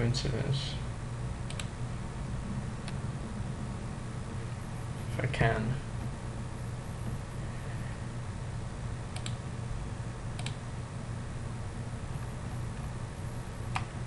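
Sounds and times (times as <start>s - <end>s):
steady low hum: 0.0s - 14.0s
computer mouse clicks: 1.5s - 1.7s, 9.1s - 9.4s, 10.4s - 10.6s, 13.7s - 13.9s.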